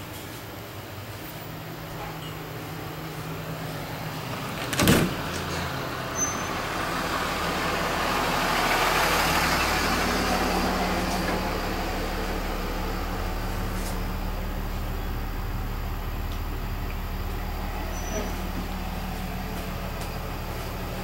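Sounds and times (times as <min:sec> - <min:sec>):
steady low hum: 0:10.3 - 0:21.0.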